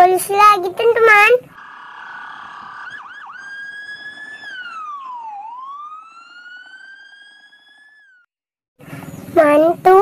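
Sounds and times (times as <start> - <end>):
police siren wailing: 1.5 - 8.3
siren chirps: 1.5 - 8.3.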